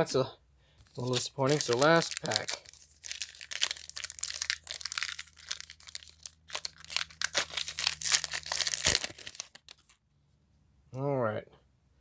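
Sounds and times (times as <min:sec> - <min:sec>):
card pack wrapper tearing and crinkling: 0:00.8 - 0:10.0.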